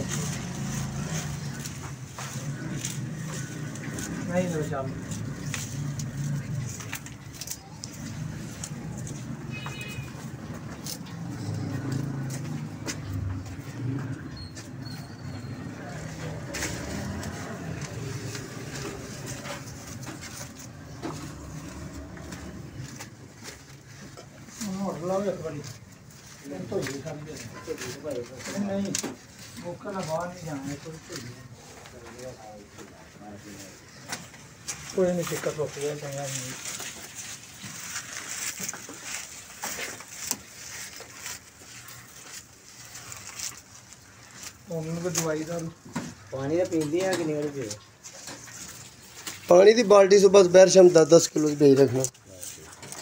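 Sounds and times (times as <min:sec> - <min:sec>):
stalks crackling and snapping: 0:00.0 - 0:14.0, 0:16.0 - 0:32.9, 0:33.6 - 0:53.0
scrapes and clicks: 0:00.0 - 0:24.6
leaves rustling: 0:00.0 - 0:53.0
water buffalo chewing fodder: 0:00.0 - 0:53.0.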